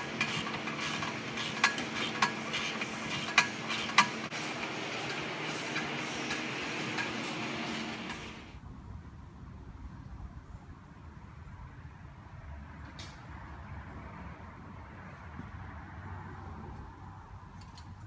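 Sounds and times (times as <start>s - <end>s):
low shop hum: 0.0s - 18.0s.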